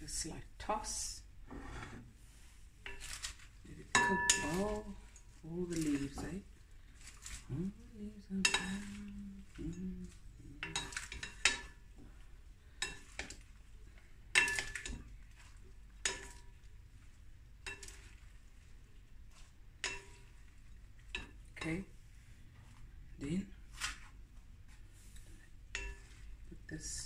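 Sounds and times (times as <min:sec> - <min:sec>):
salad leaves being tossed: 0:02.8 - 0:12.2, 0:12.8 - 0:27.0
wooden servers clinking glass bowl: 0:03.8 - 0:06.5, 0:07.2 - 0:11.9, 0:14.3 - 0:15.1, 0:19.8 - 0:20.4.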